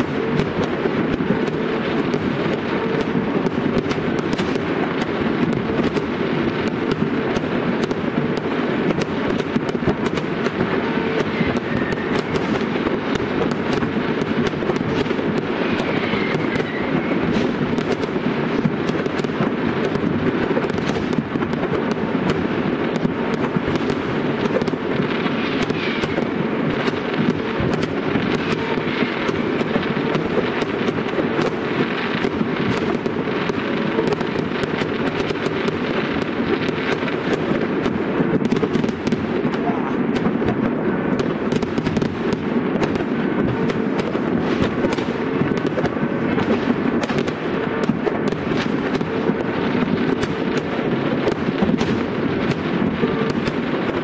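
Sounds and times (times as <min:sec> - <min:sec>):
fireworks crackling and banging: 0:00.0 - 0:54.0.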